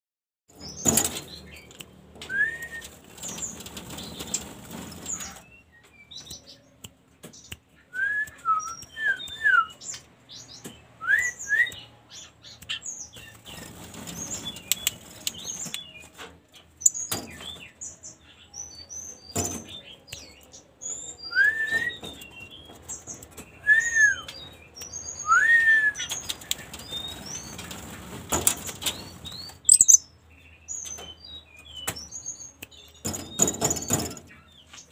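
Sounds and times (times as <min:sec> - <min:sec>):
bird wings flapping in cage: 0:00.6 - 0:01.4, 0:02.2 - 0:05.4, 0:13.1 - 0:16.3, 0:26.0 - 0:29.7
whistled bird call notes: 0:20.9 - 0:22.4, 0:23.6 - 0:26.3, 0:29.3 - 0:30.1
tiny high bird chirps: 0:29.0 - 0:34.9.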